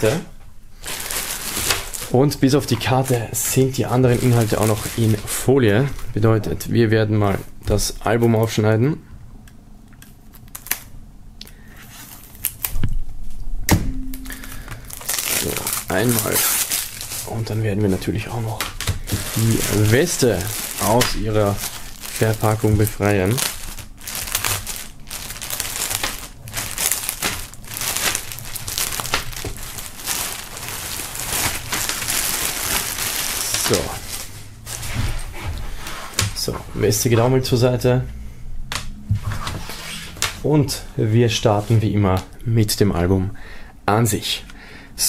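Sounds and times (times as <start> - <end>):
plastic film rustling: 0.0 - 6.2, 11.8 - 12.8, 14.2 - 37.4.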